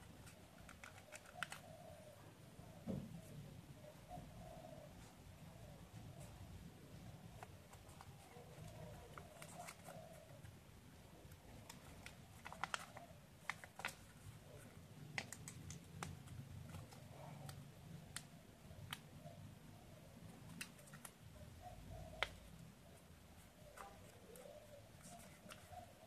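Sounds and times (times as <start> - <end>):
paper crinkling: 0.0 - 1.7, 7.3 - 10.5, 11.3 - 17.6, 23.4 - 26.0.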